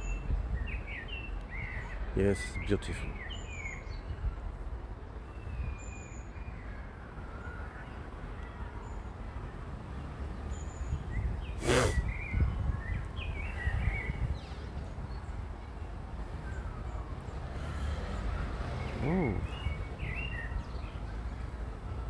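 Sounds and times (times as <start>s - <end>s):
small birds chirping: 16.5s - 21.1s.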